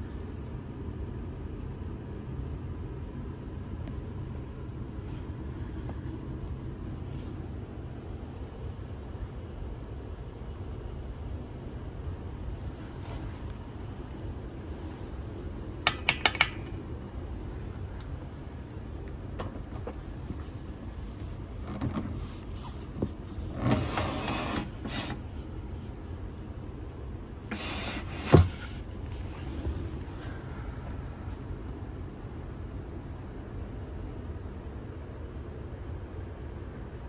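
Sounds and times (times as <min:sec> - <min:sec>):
low hum in train coach: 0:00.0 - 0:37.0
window blind sliding on rail: 0:19.8 - 0:26.3, 0:27.4 - 0:30.4.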